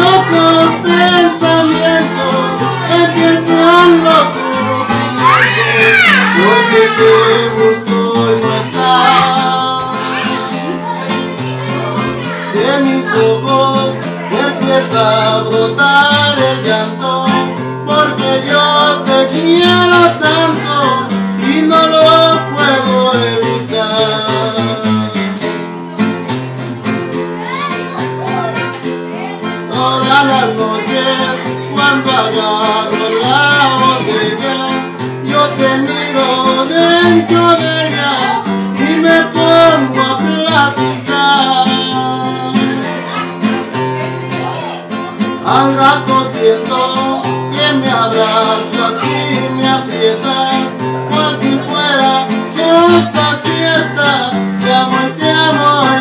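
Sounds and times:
acoustic guitar: 0.0 - 56.0
man singing: 0.0 - 56.0.

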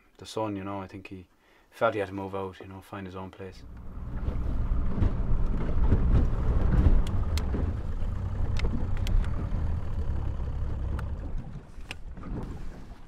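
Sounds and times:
motorboat engine rumbling: 3.5 - 13.0.

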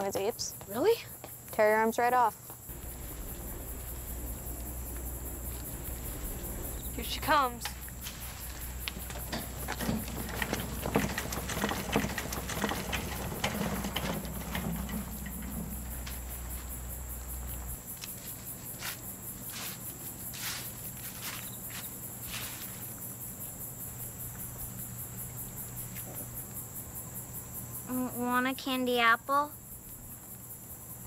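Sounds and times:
crickets chirping: 0.0 - 31.0.

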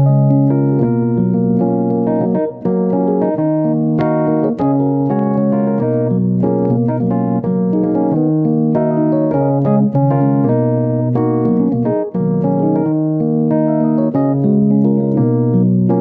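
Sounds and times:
keyboard playing sustained chords: 0.0 - 16.0.

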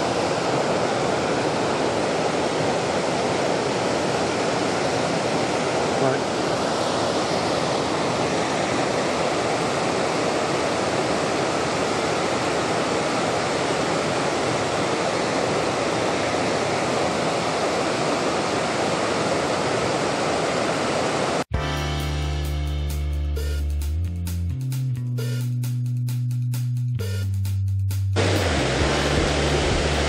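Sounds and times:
water rushing over weir: 0.0 - 21.5, 28.2 - 30.0
music: 21.5 - 30.0.

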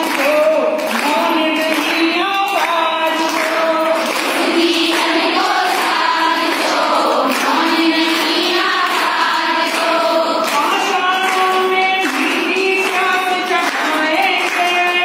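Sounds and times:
women singing in unison: 0.9 - 11.1.

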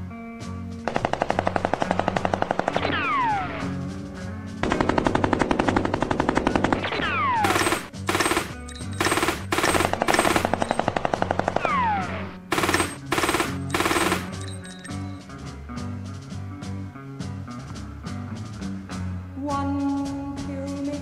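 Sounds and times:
background music: 0.0 - 21.0
machine-gun fire: 0.9 - 3.7, 4.6 - 14.8.

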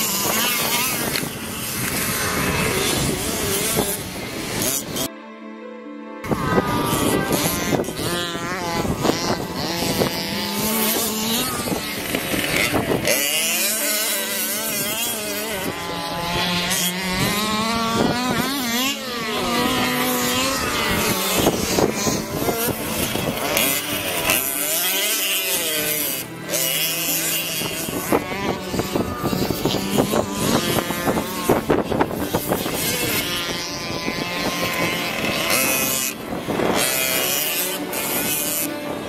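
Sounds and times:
rc car engine revving: 0.0 - 5.1, 6.2 - 39.0.

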